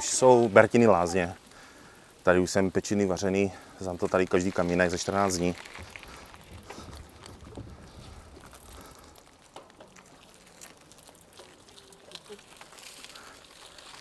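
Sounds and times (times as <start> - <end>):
bicycle rolling over boards: 0.0 - 14.0.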